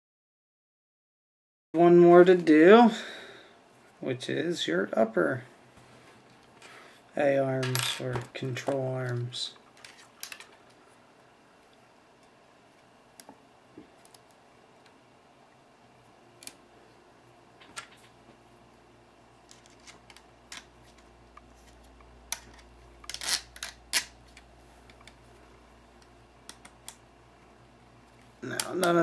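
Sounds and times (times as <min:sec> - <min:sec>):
small plastic parts clicking: 0:09.8 - 0:10.6, 0:19.5 - 0:21.0, 0:22.3 - 0:25.2, 0:26.0 - 0:27.0.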